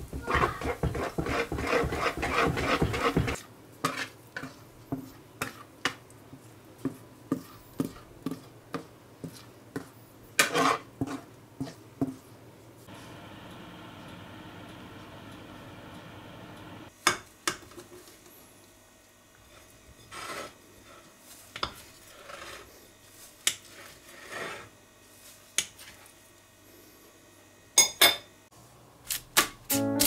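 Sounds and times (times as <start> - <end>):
knife scraping cake: 0.3 - 5.7, 9.2 - 11.8, 19.4 - 26.1.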